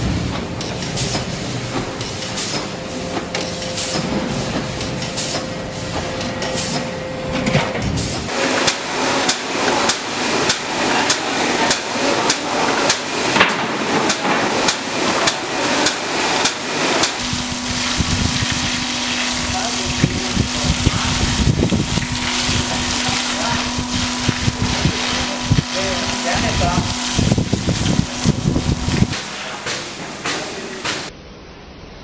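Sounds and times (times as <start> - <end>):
factory press line clattering: 0.0 - 31.1.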